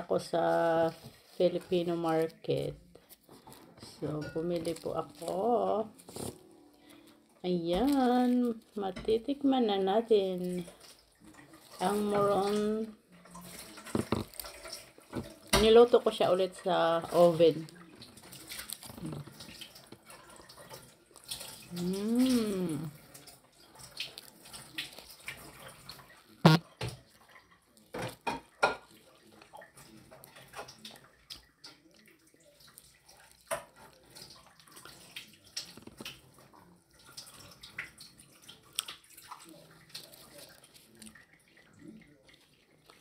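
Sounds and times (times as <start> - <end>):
leaf wrapper rustling: 0.1 - 22.9, 39.8 - 41.2
chewing and lip smacking: 17.7 - 27.9, 28.9 - 43.0
person humming: 21.8 - 22.9.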